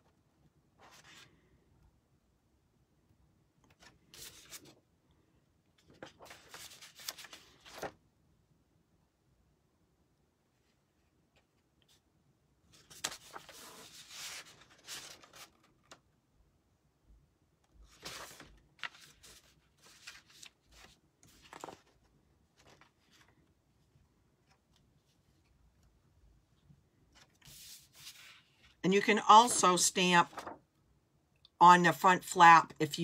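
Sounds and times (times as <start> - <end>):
paper rustling and scraping: 3.7 - 4.8, 5.8 - 8.0, 12.7 - 16.0, 17.8 - 23.4, 27.2 - 30.6.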